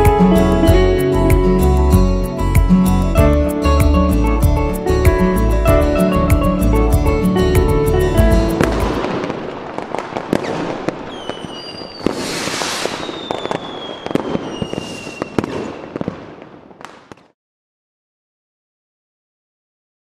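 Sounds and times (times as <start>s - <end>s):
background music: 0.0s - 9.1s
fireworks cracking and popping: 8.6s - 17.4s
falling firework whistles: 9.0s - 17.3s.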